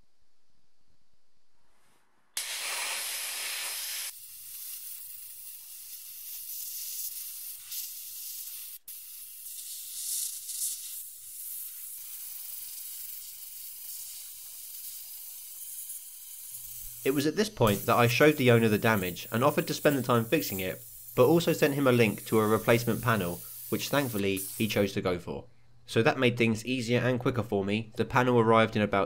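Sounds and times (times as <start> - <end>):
abrasive blast gun hissing: 2.4 - 24.9.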